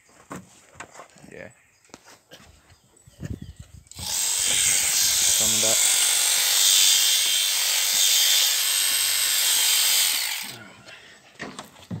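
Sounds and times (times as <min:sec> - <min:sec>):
electric shears running: 0:03.9 - 0:10.6.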